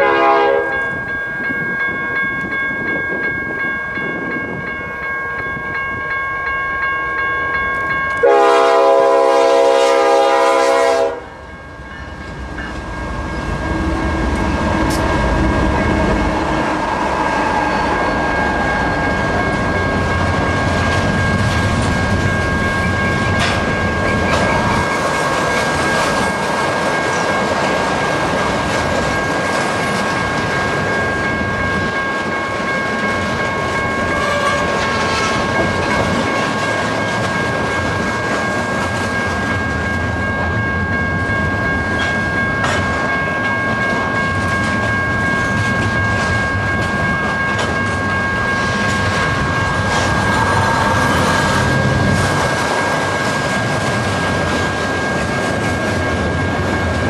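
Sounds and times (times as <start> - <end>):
locomotive horn blast: 0.0 - 0.8, 8.2 - 11.4
crossing bell ringing: 0.0 - 57.0
train wheels rumbling and clacking: 7.7 - 57.0.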